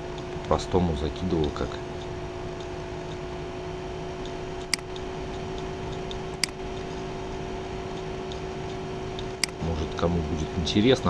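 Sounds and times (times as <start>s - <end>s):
low electrical hum: 0.0s - 11.0s
computer mouse clicks: 4.2s - 6.9s, 7.9s - 9.6s.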